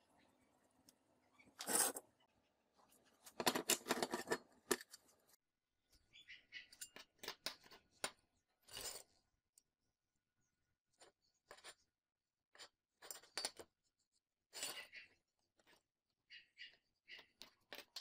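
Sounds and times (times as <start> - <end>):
metallic clinks and scrapes: 1.4 - 2.1, 6.6 - 7.9, 8.6 - 9.2.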